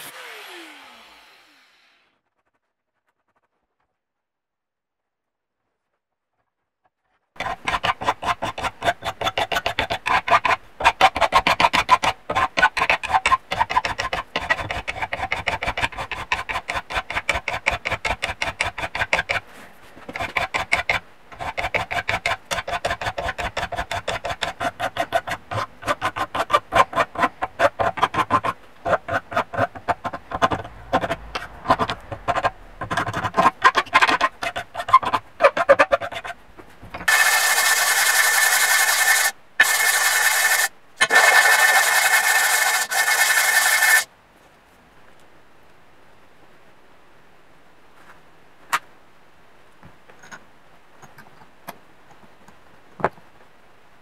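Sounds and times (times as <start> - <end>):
hand file rasping on metal: 7.4 - 36.4, 37.0 - 44.1.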